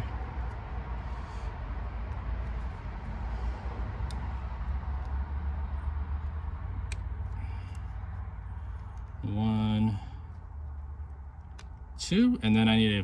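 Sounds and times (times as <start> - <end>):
low background rumble: 0.0 - 13.0
faint clicks of wire connectors: 4.0 - 4.4, 6.2 - 8.0, 10.3 - 12.0.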